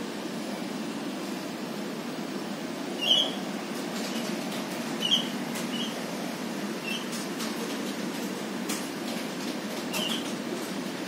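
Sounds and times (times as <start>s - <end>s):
bird squeaky calls: 3.0s - 3.4s, 5.0s - 6.0s, 6.8s - 7.1s.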